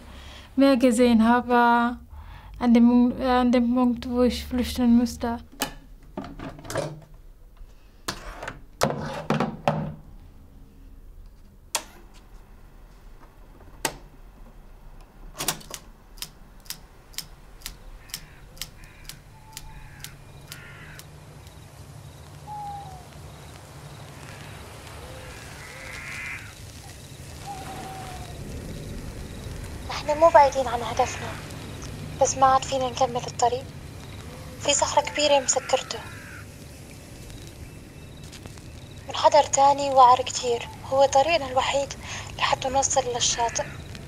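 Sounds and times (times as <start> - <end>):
steady low hum: 10.0 - 44.0
sharp evenly spaced clicks: 16.1 - 22.4
short bird calls: 17.8 - 21.1, 22.4 - 28.4.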